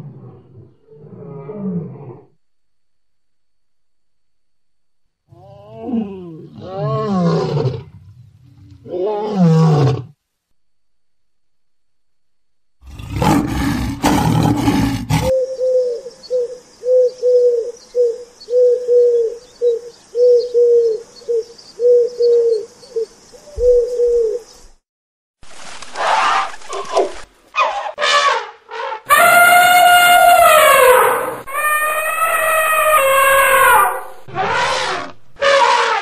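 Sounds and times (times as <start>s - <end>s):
lion roaring: 12.8s - 15.3s, 29.1s - 36.0s
elephant trumpeting: 27.6s - 36.0s
bird calling: 29.1s - 35.8s.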